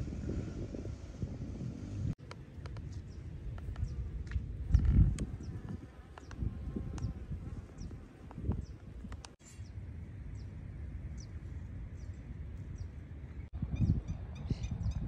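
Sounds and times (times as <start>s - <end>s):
low rumbling haze: 0.0s - 2.4s
small birds chirping: 2.3s - 15.0s.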